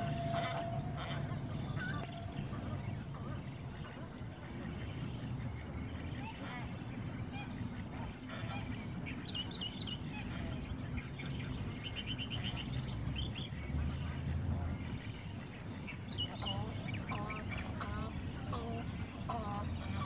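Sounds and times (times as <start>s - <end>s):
low rumble: 0.0s - 9.1s
swan honking: 0.0s - 20.0s.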